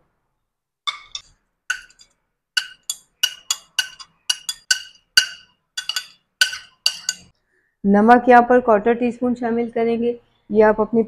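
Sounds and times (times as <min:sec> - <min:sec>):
spoon clinking on ceramic plate: 0:00.9 - 0:07.3.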